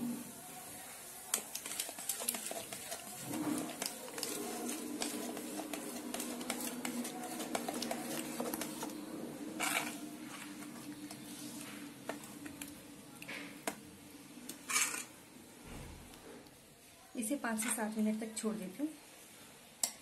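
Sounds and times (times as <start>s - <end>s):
spoon scraping metal bowl: 1.3s - 12.6s, 14.6s - 15.1s.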